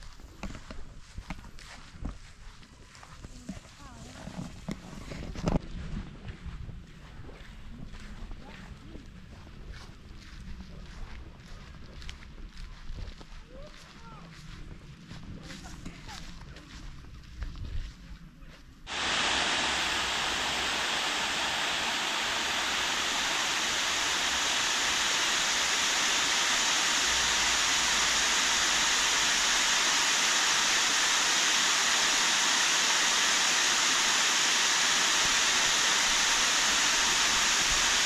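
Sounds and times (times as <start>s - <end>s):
water rushing over weir: 18.9s - 38.0s.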